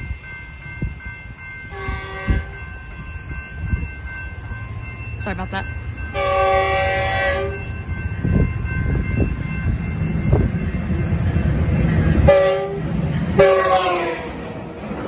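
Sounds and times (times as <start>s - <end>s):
train rumbling: 0.0s - 15.0s
train horn blasts: 1.7s - 2.7s, 6.1s - 7.7s, 12.2s - 14.4s.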